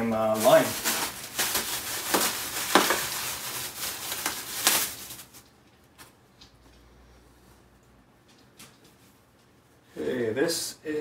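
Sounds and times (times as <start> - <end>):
clothing and bag rustling: 0.2 - 6.0.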